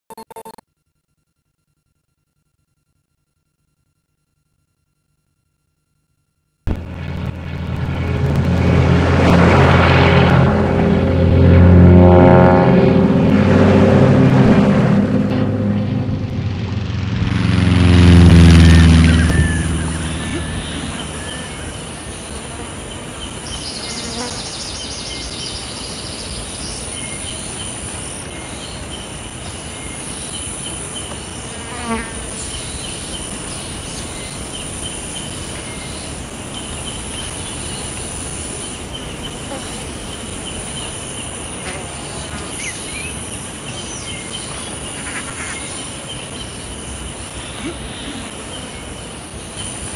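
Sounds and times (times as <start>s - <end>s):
propeller plane passing: 6.7s - 25.3s
insects chirring: 18.6s - 49.9s.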